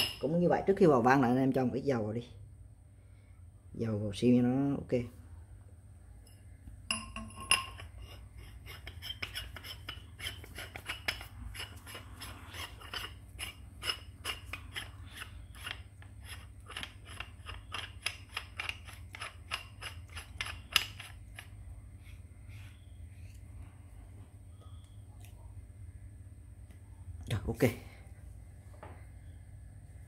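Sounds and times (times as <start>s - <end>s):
metal valve clicking and scraping: 6.9s - 21.5s.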